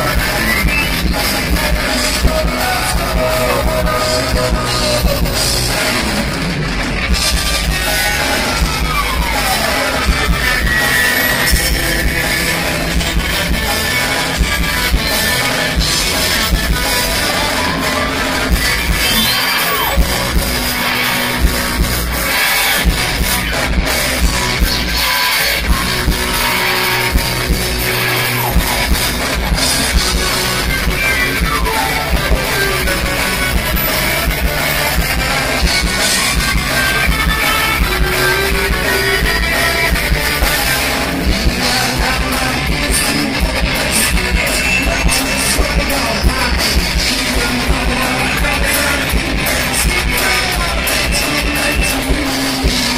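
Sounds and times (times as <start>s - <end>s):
live rock band playing: 0.0s - 52.9s
falling pitch glide: 30.6s - 40.8s.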